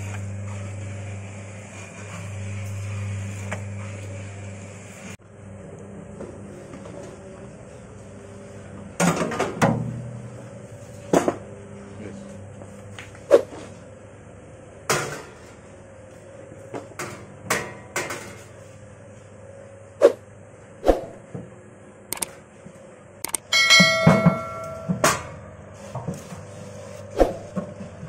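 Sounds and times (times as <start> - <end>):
metallic knocks and clanks: 23.6 - 25.3.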